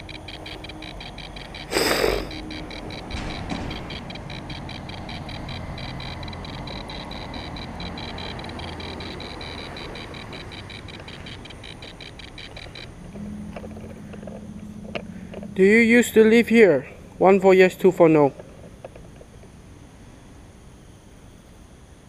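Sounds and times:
rapid high electronic beeps: 0:00.0 - 0:16.7.

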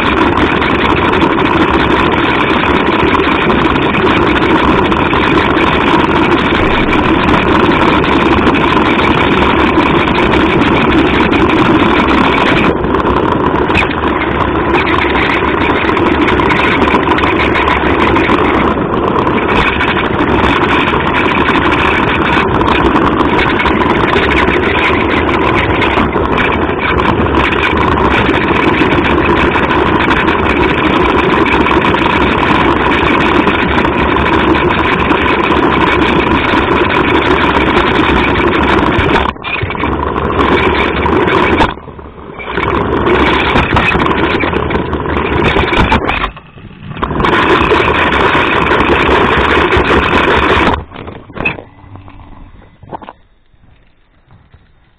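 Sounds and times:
small electric motor and gears: 0:00.0 - 0:54.9.

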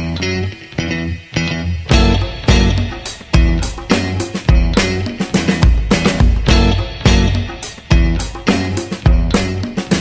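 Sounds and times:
music with drums bass and guitar: 0:00.0 - 0:10.0.

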